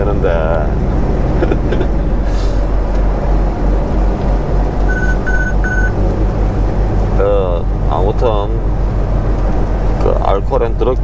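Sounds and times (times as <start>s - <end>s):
truck diesel engine and road noise: 0.0s - 11.0s
short high electronic beeps: 4.9s - 6.0s.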